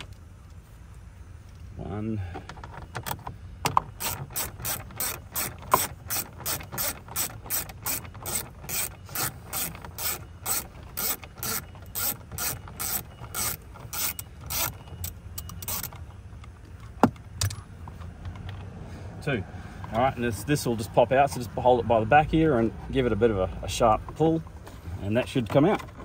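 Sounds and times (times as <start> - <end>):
ratchet wrench clicking: 3.7 - 16.0.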